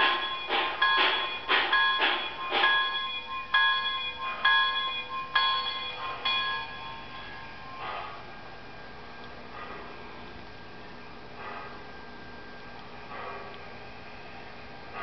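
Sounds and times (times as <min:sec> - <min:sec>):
locomotive bell ringing through speaker: 0:00.0 - 0:08.2.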